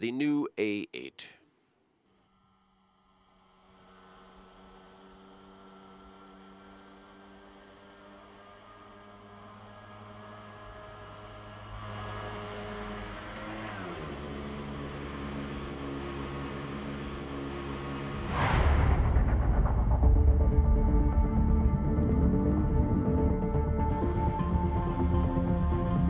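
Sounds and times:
low sustained drone: 14.7 - 26.0.

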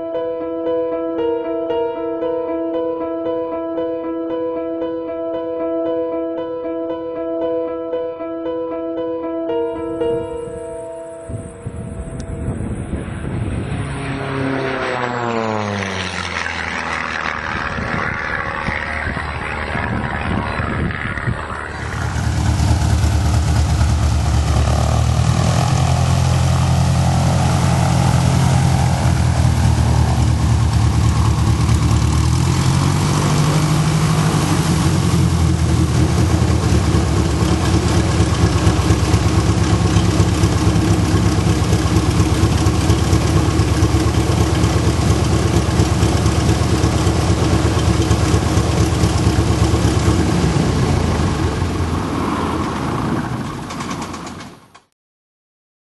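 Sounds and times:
propeller plane passing: 9.7 - 54.7
plane engine idling: 11.3 - 54.6.

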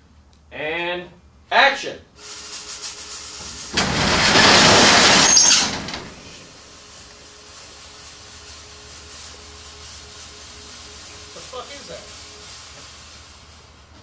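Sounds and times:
metal roll-up door rattling: 3.6 - 6.6
high squeal: 4.0 - 6.4.

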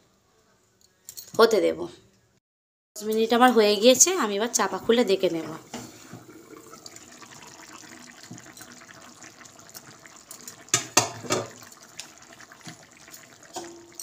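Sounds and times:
curry bubbling and simmering: 5.6 - 14.0.

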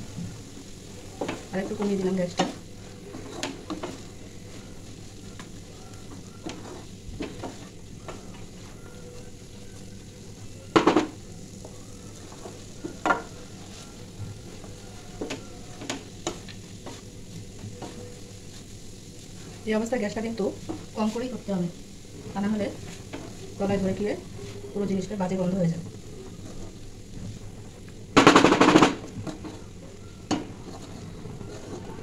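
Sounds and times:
steady sizzle: 0.0 - 32.0
wooden spatula scraping a pan: 0.2 - 28.1, 28.9 - 32.0
knocks against the pan: 10.8 - 11.2.

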